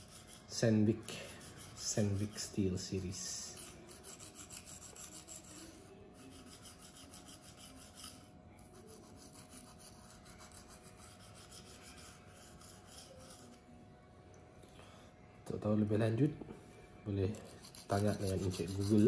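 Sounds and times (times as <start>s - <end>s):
knife rasping on sharpening stone: 0.0s - 13.6s, 17.4s - 19.0s.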